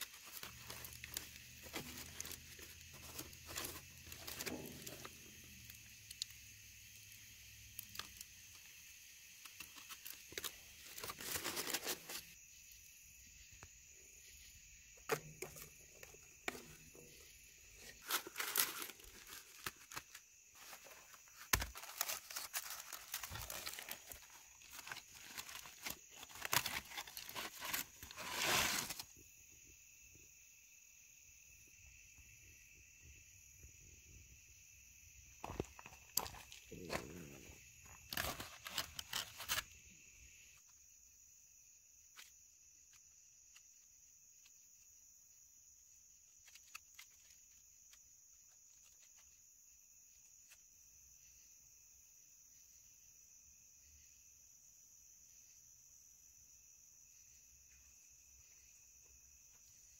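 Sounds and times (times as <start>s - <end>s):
aluminium foil crinkling: 0.0s - 6.3s, 7.7s - 8.7s, 9.3s - 12.4s, 17.7s - 29.1s, 37.9s - 39.8s
insects trilling: 0.0s - 59.9s.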